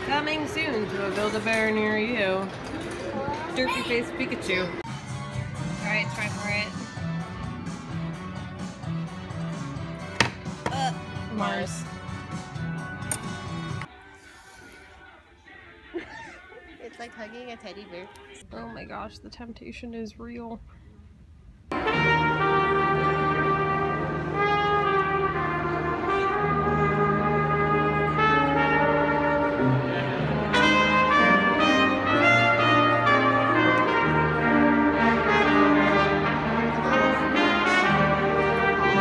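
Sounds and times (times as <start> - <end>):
brass ensemble playing chords: 21.7 - 39.0
tuba bass line: 21.7 - 39.0.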